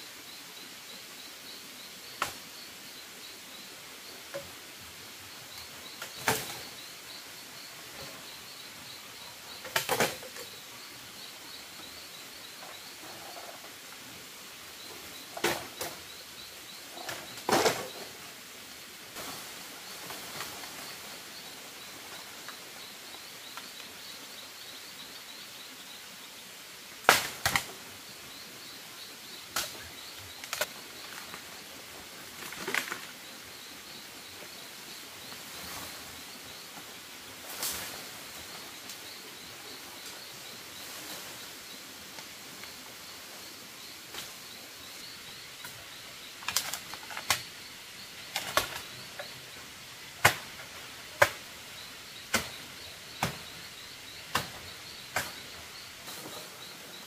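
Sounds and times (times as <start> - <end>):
bamboo knocking and cracking: 27.0 - 27.7, 50.2 - 50.6.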